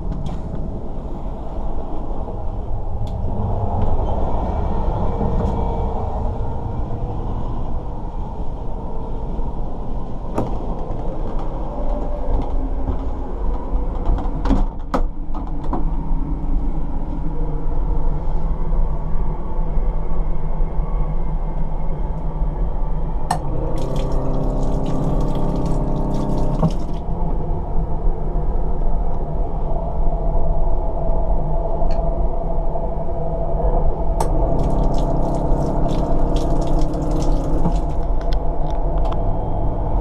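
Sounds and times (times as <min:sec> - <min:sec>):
train running rumble: 0:00.0 - 0:18.5
water running into basin: 0:23.7 - 0:27.0, 0:34.4 - 0:38.0.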